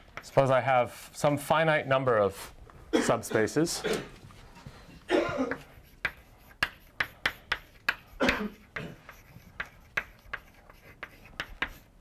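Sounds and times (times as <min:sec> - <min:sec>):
chalk tapping on blackboard: 0:00.0 - 0:00.6, 0:05.5 - 0:12.0.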